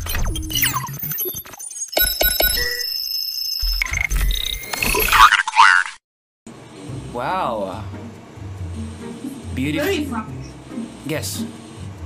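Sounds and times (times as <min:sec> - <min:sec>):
short electronic beeps: 0:00.0 - 0:05.1.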